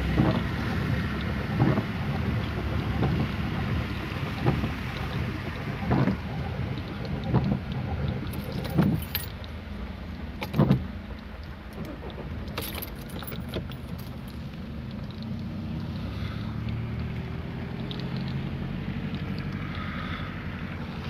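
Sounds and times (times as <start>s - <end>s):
dull thumps and splashes: 0.0s - 9.4s
engine and tyres in water rumbling: 0.0s - 21.0s.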